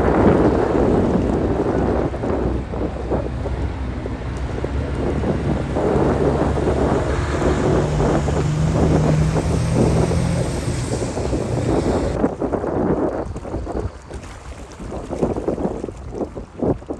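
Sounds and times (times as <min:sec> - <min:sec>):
wind buffeting microphone: 0:00.0 - 0:16.9
diesel truck driving past: 0:03.3 - 0:12.2.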